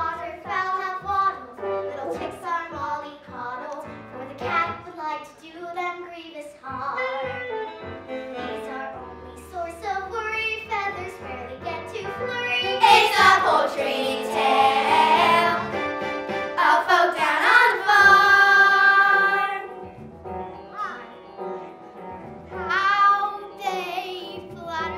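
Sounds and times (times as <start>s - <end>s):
musical accompaniment: 6.6s - 24.9s
children's chorus singing: 12.7s - 15.7s, 16.5s - 19.7s.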